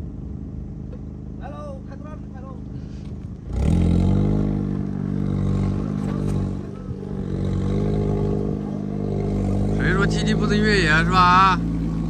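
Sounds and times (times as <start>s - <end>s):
car engine revving hard: 3.5s - 12.0s.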